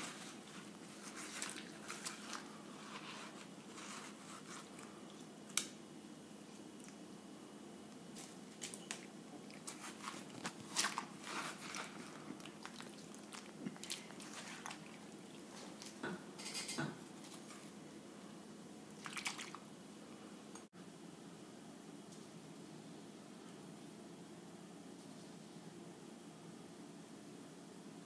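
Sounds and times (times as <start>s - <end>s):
faint steady hum: 0.0s - 28.0s
spoon scraping watermelon: 9.6s - 14.8s.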